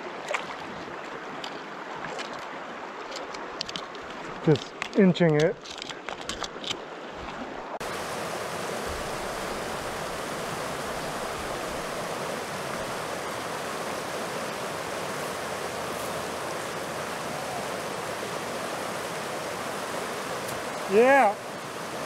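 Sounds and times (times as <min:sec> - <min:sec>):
river water rushing over rocks: 0:06.1 - 0:22.0.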